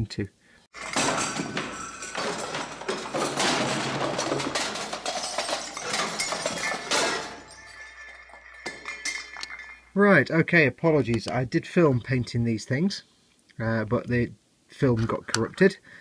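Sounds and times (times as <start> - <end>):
smashing and clattering crash: 0.7 - 9.9.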